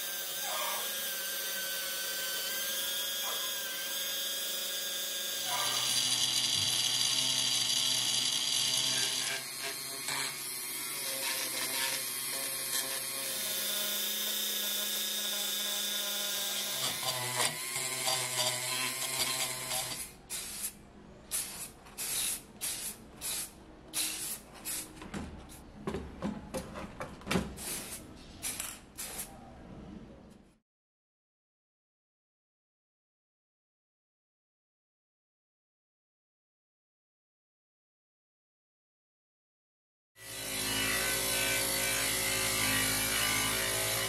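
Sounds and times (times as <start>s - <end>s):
rotary tool whining on metal: 0.0s - 20.1s.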